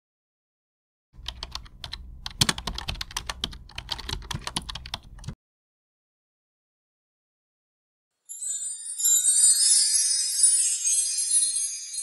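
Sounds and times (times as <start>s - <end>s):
keyboard key clicks: 1.2s - 5.4s.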